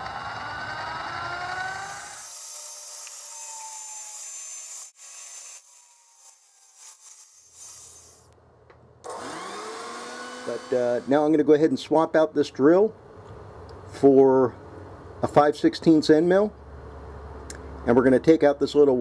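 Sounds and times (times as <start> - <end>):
drill bit cutting metal: 0.0 - 8.3, 9.1 - 11.3
mill motor whine: 0.0 - 8.4, 9.0 - 11.3.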